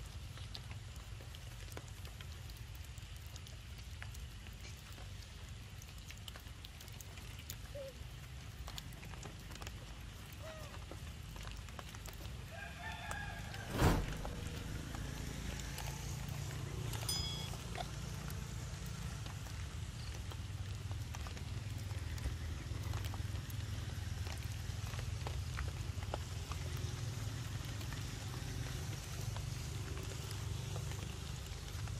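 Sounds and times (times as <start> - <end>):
rooster crowing: 12.4 - 15.2
low rumble: 13.6 - 16.4
loud thump: 13.7 - 15.0.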